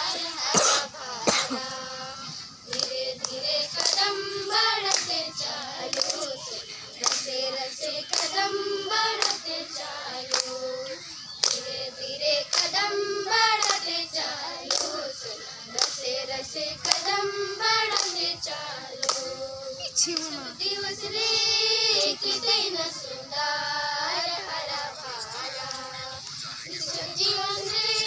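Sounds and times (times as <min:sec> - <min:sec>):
girls singing folk song: 0:00.0 - 0:28.0
hand claps: 0:02.7 - 0:11.8, 0:12.5 - 0:15.0, 0:15.7 - 0:17.2, 0:17.8 - 0:19.3, 0:20.0 - 0:20.4.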